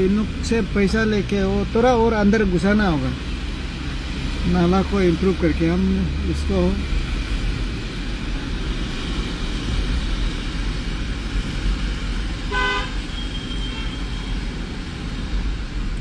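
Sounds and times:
car road and engine rumble: 0.0 - 16.0
vehicle horn toot: 12.5 - 14.3.

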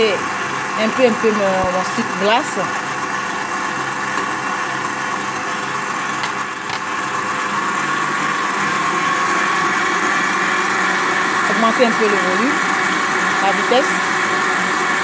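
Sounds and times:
stand mixer whisking cream: 0.0 - 15.0.

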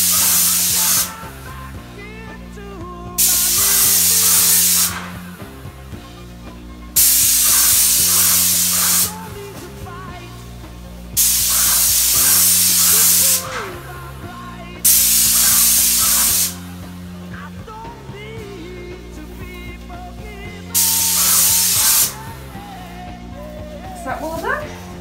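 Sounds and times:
paint spray gun hissing: 0.0 - 1.7, 3.2 - 5.8, 6.9 - 17.3, 20.5 - 23.1
background music: 0.0 - 25.0.

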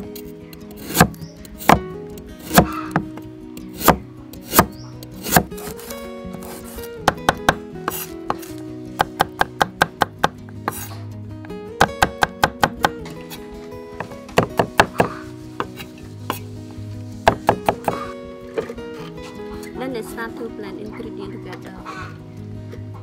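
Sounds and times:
cleaver chopping on wooden block: 0.8 - 10.9, 11.8 - 13.1, 14.0 - 16.4, 17.2 - 18.7.

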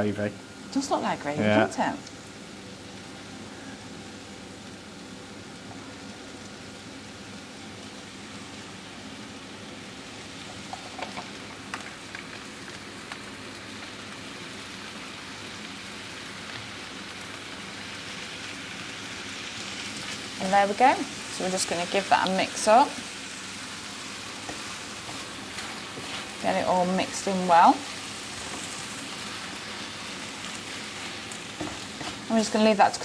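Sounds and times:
food sizzling in a frying pan: 0.0 - 33.0.

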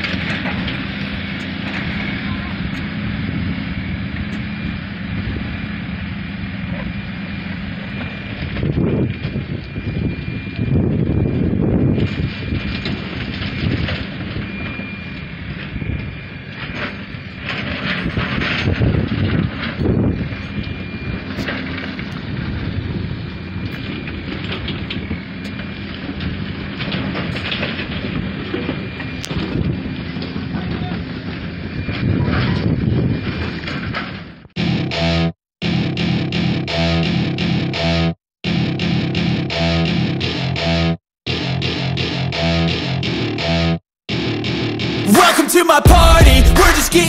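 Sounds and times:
diesel engine running: 0.0 - 32.1, 44.1 - 47.0
wind on microphone: 8.3 - 14.8, 18.0 - 21.4, 27.9 - 34.0
low rumbles: 44.3 - 47.0.

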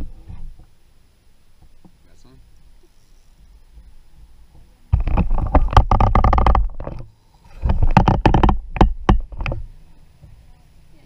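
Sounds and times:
microphone handling noise: 2.8 - 10.4.

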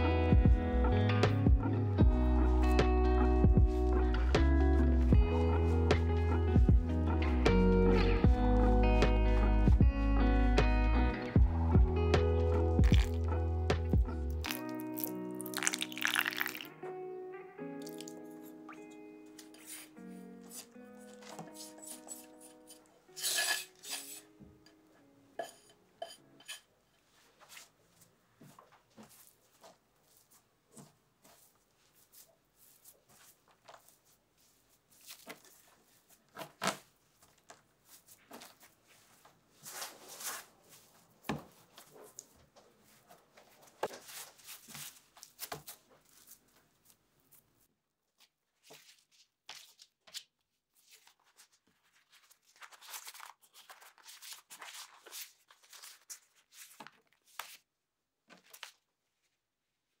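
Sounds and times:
hands crackling and patting dough: 12.8 - 16.7, 28.4 - 57.7.

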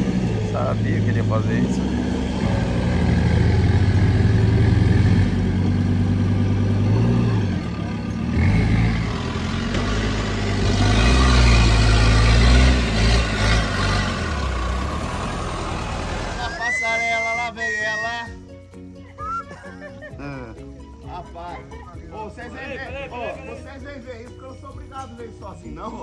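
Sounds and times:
vehicle engine running: 0.0 - 16.6.

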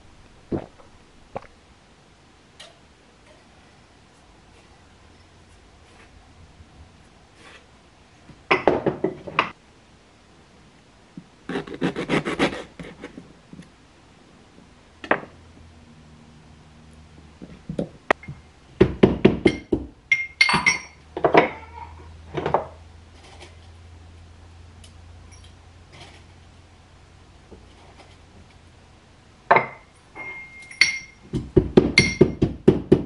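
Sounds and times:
pots and utensils clinking: 19.6 - 21.8, 29.5 - 31.2
knife chopping on wooden board: 31.3 - 33.0.

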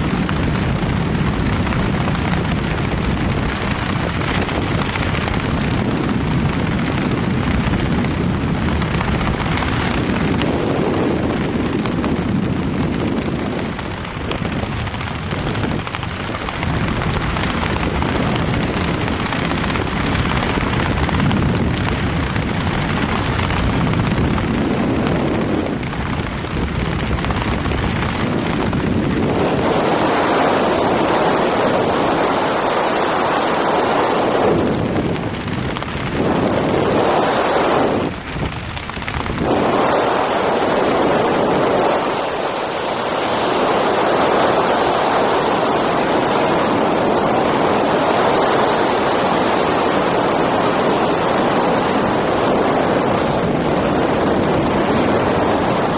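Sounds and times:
wind buffeting microphone: 0.0 - 55.9.

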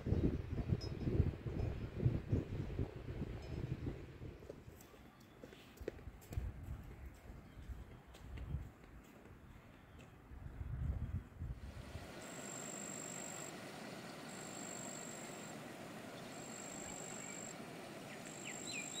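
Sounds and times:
wind buffeting microphone: 0.0 - 4.8, 10.3 - 12.2
steady outdoor hiss: 11.3 - 19.0
high-pitched insect trill: 12.2 - 13.5, 14.1 - 17.6.

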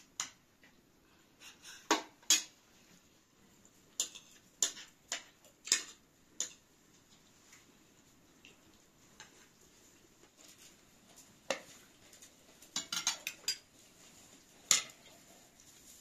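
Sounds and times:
metal spoons clinking on plates: 1.8 - 2.6, 4.0 - 6.6, 12.7 - 13.7, 14.7 - 15.0.

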